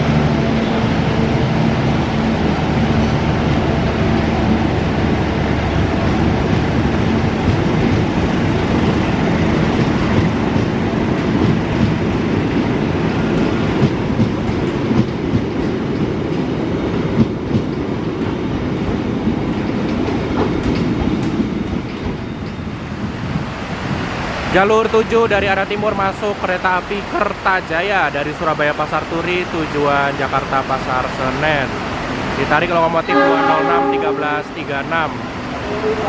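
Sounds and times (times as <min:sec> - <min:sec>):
train wheels rumbling on rail: 0:00.0 - 0:36.0.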